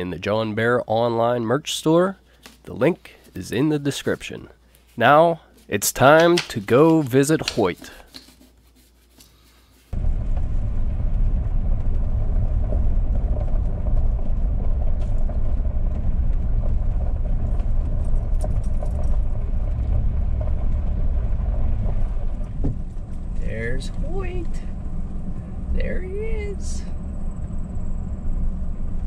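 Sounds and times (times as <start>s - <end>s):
car driving on gravel: 9.9s - 29.0s.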